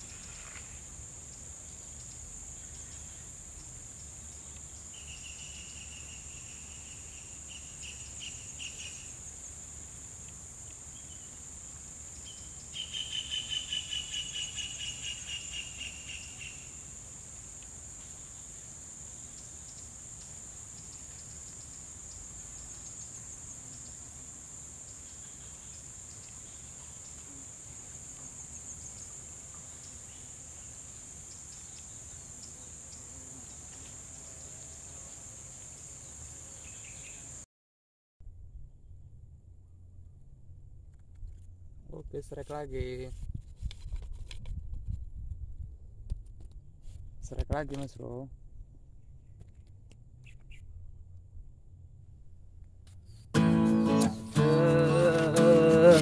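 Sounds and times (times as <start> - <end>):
high-pitched insect chorus: 0.0 - 37.4, 53.4 - 56.0
loud pulsed insect trill: 0.0 - 37.4.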